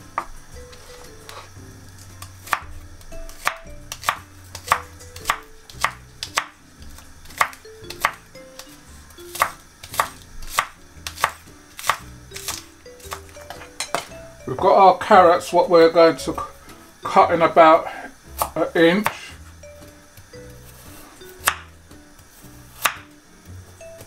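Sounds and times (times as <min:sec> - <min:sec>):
knife chopping on wooden board: 0:02.2 - 0:02.7, 0:03.3 - 0:06.6, 0:07.3 - 0:08.7, 0:09.3 - 0:14.1, 0:18.4 - 0:19.3, 0:21.4 - 0:21.7, 0:22.7 - 0:23.1.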